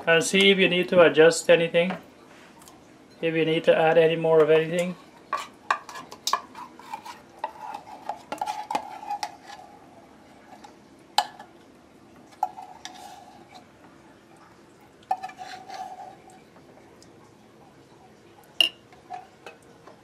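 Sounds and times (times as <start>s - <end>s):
spatula scraping batter in bowl: 5.3s - 9.8s, 12.4s - 13.7s, 15.1s - 16.3s.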